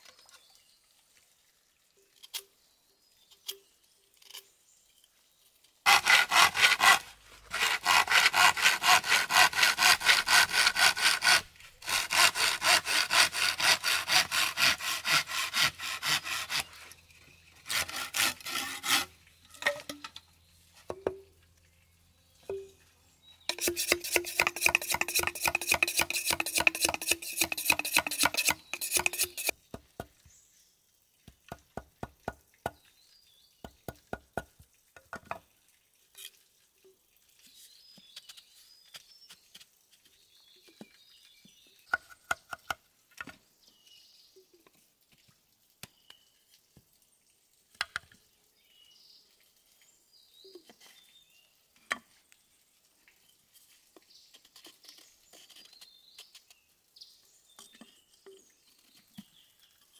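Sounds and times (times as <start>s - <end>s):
cooking knocks and taps: 23.5s - 30.3s, 31.2s - 32.8s, 33.6s - 35.5s.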